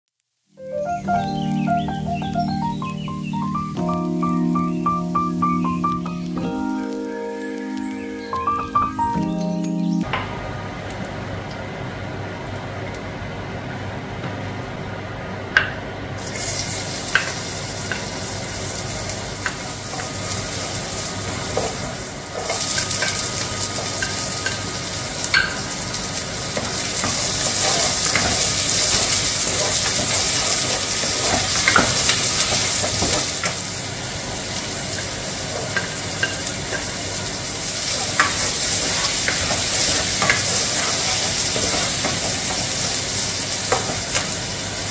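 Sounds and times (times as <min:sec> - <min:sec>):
onion sizzling in hot oil: 0:16.2 - 0:44.9.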